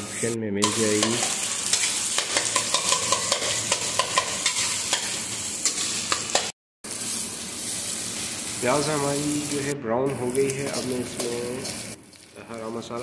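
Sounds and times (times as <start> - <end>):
onions sizzling in hot oil: 0.1 - 13.0
steel spoon scraping pan: 0.6 - 6.5.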